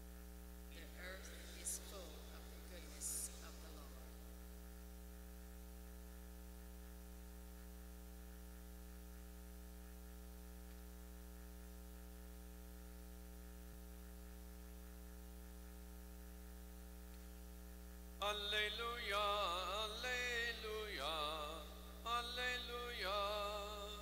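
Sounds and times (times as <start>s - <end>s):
electrical mains hum: 0.0s - 24.0s
faint hiss: 0.6s - 6.3s.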